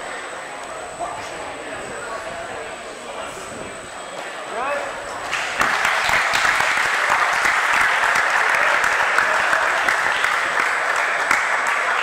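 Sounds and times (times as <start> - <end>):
audience clapping: 5.2 - 12.0.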